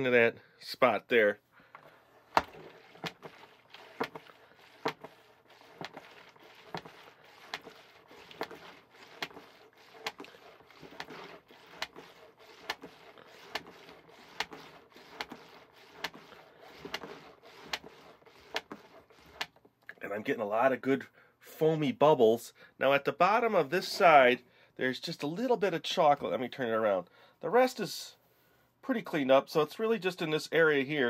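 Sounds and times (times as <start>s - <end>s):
milk sloshing: 1.8s - 19.7s
plastic plunger clicking: 1.8s - 19.7s.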